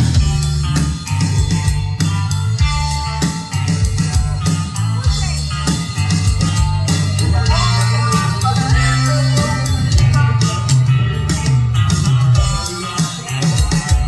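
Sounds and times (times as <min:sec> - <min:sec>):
drums hitting: 0:00.0 - 0:14.0
held bass line: 0:00.0 - 0:14.0
rock band playing instrumental: 0:00.0 - 0:14.0.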